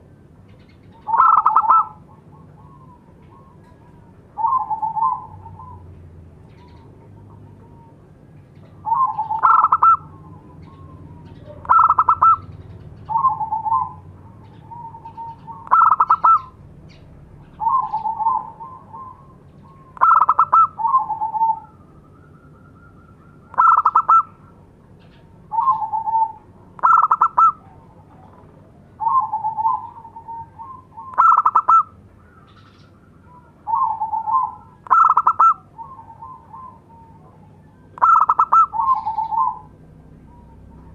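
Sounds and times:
dove cooing: 0.6 - 40.9.

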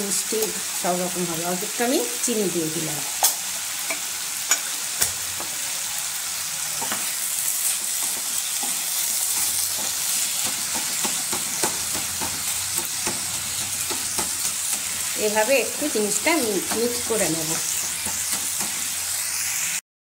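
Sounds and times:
vegetables sizzling in a pan: 0.0 - 19.8
spatula stirring and scraping: 6.7 - 19.0
spatula knocking against pan: 7.8 - 14.9.

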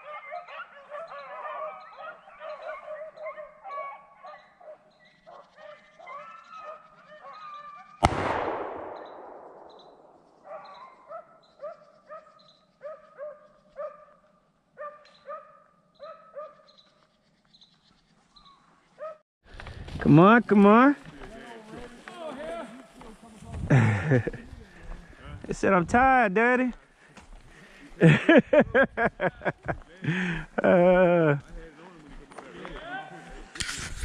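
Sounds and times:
beagles baying: 0.0 - 8.0, 9.0 - 17.0
loud shotgun shot: 8.0 - 10.3.

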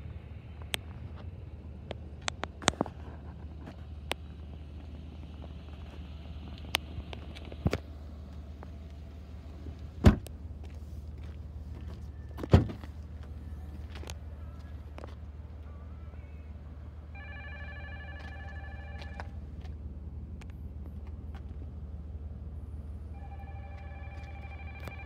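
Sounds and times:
car engine idling: 0.0 - 25.0
car doors thumping shut: 10.0 - 10.3, 12.4 - 12.8.

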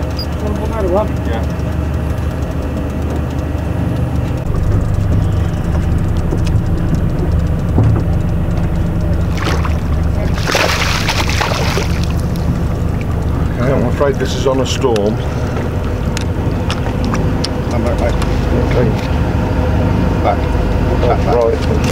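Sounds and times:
boat engine idling: 0.0 - 21.9
fish splashing: 9.2 - 13.2.

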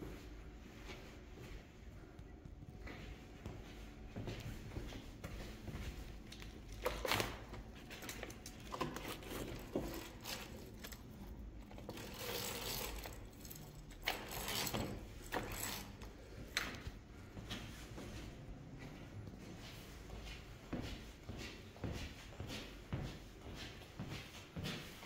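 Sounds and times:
roller blind clicking and rattling: 6.7 - 16.2.

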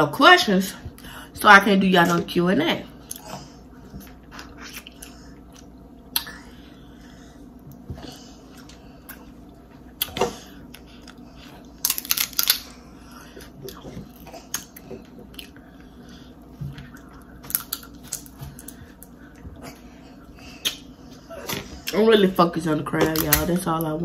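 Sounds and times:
chewing: 3.0 - 6.6, 7.6 - 22.0
crab shells cracking: 11.8 - 12.7, 17.5 - 18.8.

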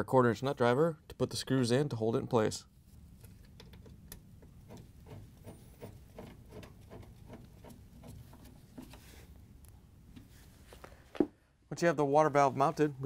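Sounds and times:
nut driver clicking and scraping: 3.2 - 9.0.

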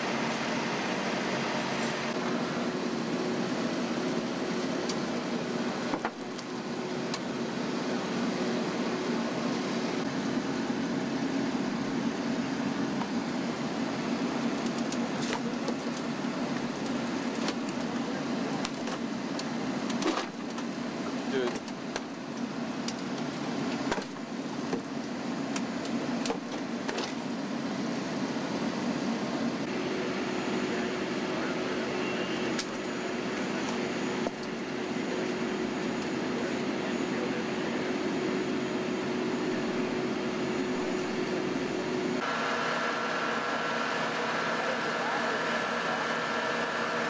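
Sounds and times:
heavy vehicle engines idling: 0.0 - 47.0.

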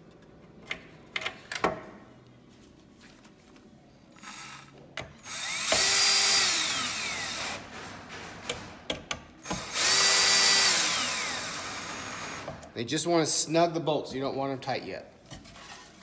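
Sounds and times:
cordless drill whining: 4.2 - 7.6, 9.5 - 12.5
drill clicks: 4.2 - 7.6, 9.4 - 12.5.

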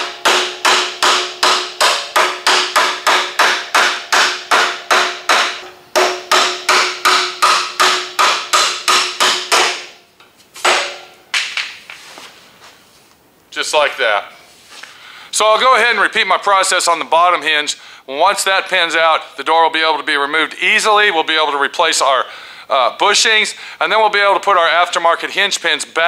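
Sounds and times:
hammer striking metal pin: 0.0 - 10.0, 10.6 - 11.8.

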